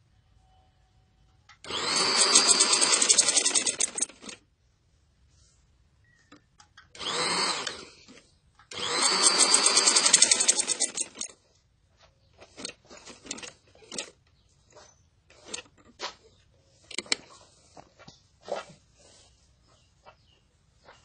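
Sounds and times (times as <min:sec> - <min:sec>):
sewing machine stitching: 0:01.6 - 0:04.4, 0:07.0 - 0:11.4, 0:12.4 - 0:14.2, 0:15.3 - 0:15.8.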